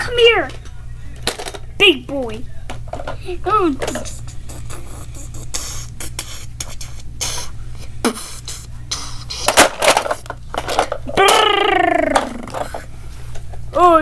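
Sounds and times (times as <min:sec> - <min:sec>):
plastic toy cars clattering: 0:00.4 - 0:01.7, 0:09.4 - 0:11.5
voice making falling sound: 0:11.1 - 0:12.6.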